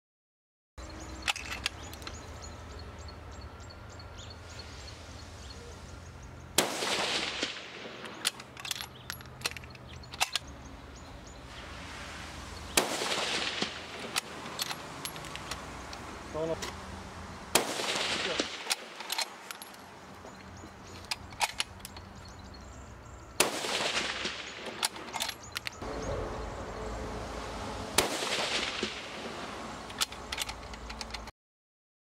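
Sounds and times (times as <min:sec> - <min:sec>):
rifle shots with echo: 0:06.6 - 0:08.4, 0:12.7 - 0:14.3, 0:17.5 - 0:19.0, 0:23.4 - 0:25.0, 0:28.0 - 0:29.4
sharp clicks: 0:23.8 - 0:25.8, 0:29.8 - 0:31.3.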